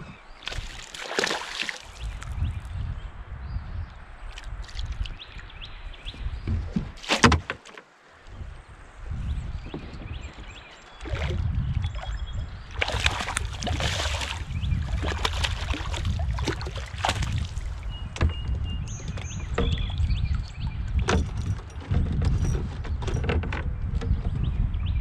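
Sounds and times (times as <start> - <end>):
water streaming off net: 0.5 - 2.0, 12.8 - 17.6
fish splashing at surface: 12.7 - 17.7.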